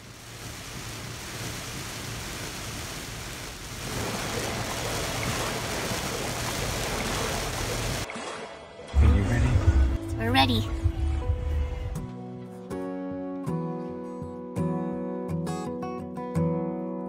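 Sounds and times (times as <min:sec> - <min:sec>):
heavy rain on car windshield: 0:00.0 - 0:08.1
low road rumble: 0:09.0 - 0:12.1.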